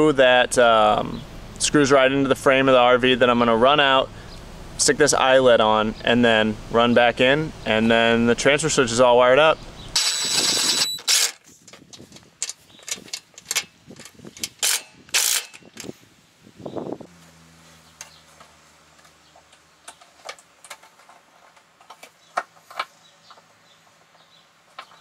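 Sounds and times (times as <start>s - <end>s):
metallic clicks of hand tools: 12.4s - 15.9s.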